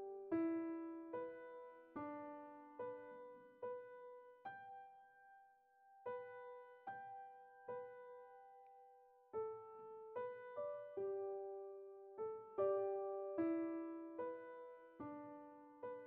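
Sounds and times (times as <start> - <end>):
soft slow piano music: 0.0 - 16.0.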